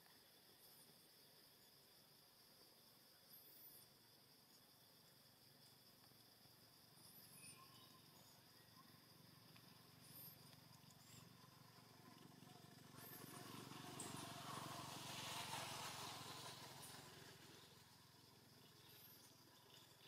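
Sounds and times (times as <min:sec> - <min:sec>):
faint high chirps: 0:06.9 - 0:11.4.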